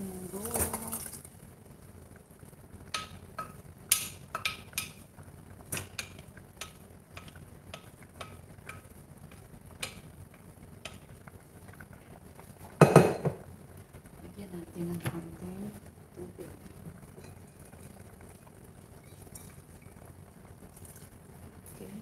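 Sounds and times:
metal pans clattering: 12.8s - 13.4s.

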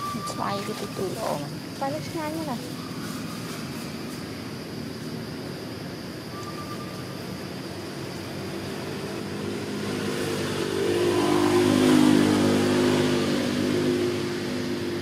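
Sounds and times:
vehicle engine passing by: 7.8s - 15.0s.

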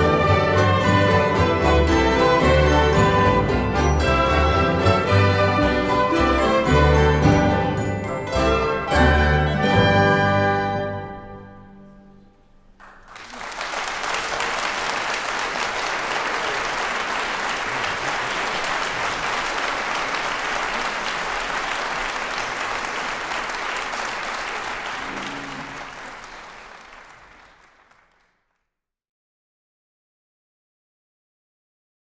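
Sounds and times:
audience applauding: 12.8s - 28.6s.

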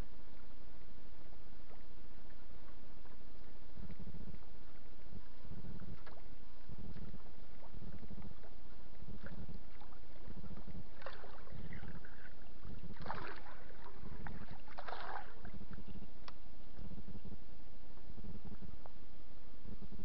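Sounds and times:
water lapping against boat: 1.6s - 16.1s
water splashes: 1.6s - 17.1s.

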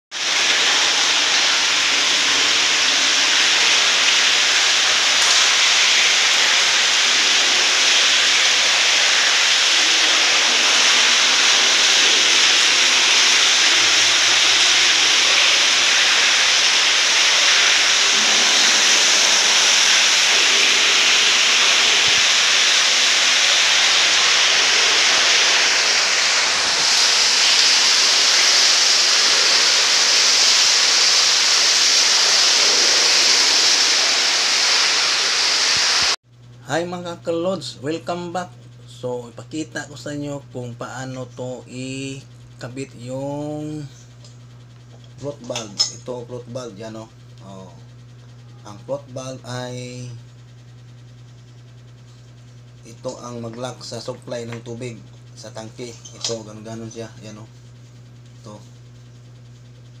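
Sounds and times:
water jetting into tank: 0.1s - 36.2s.

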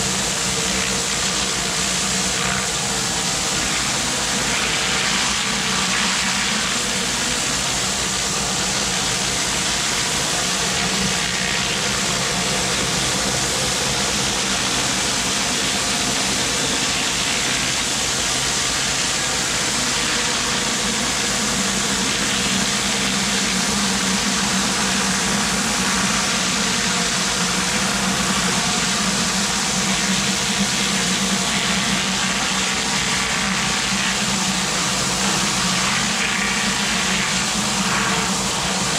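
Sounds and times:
high-pressure water spraying concrete: 0.0s - 38.9s
pressure washer engine drone: 0.0s - 38.9s.

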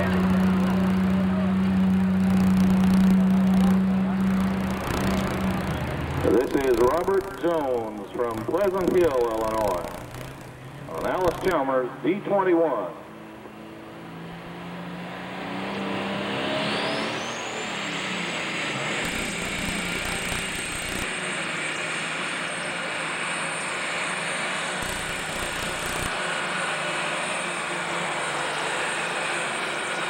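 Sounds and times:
tractor engine running flat out: 0.0s - 11.7s, 19.0s - 21.1s, 24.8s - 26.2s
high turbo whine: 0.0s - 30.0s.

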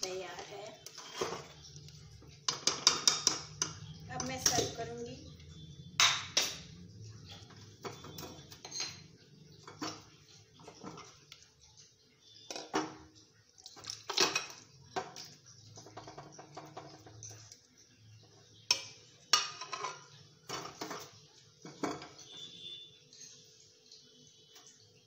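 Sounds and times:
metal spoon clinking on pot: 2.3s - 5.0s, 6.0s - 11.1s, 13.8s - 17.4s, 18.6s - 22.5s.

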